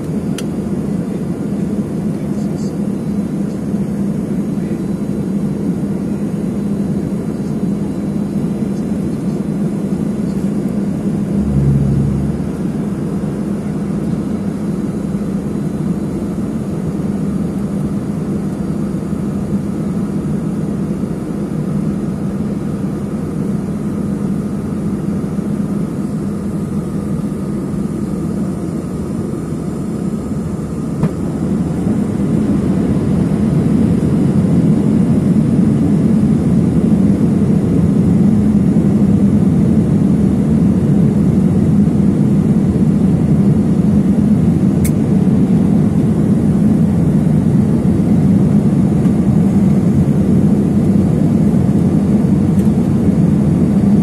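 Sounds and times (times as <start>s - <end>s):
constant hum: 0.0s - 54.0s
jet engine drone in cabin: 0.0s - 54.0s
airflow: 11.0s - 14.1s
low thud: 11.4s - 12.8s.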